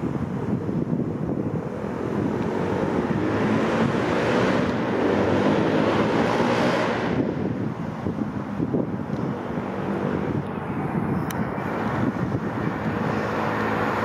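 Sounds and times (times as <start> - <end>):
diesel locomotive engine: 0.0 - 14.0
wind on microphone: 0.0 - 14.0.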